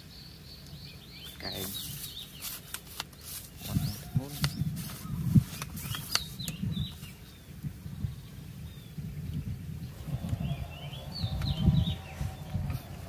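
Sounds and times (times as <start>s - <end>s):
small birds chirping: 0.0s - 13.0s
low rumble on microphone: 3.6s - 13.0s.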